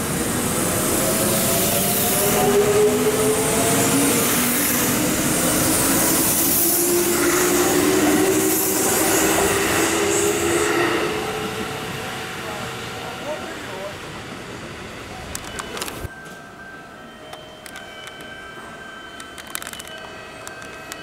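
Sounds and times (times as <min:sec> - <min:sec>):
electric train motors whining: 0:00.0 - 0:16.1
wheels on rails: 0:15.1 - 0:16.4, 0:17.3 - 0:21.0.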